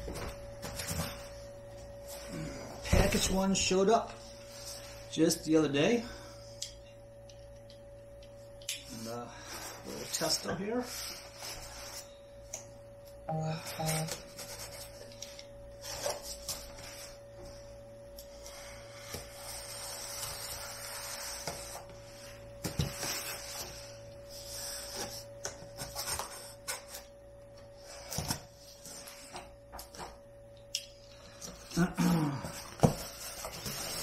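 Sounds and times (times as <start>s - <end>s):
scratching along cardboard: 18.5s - 25.2s.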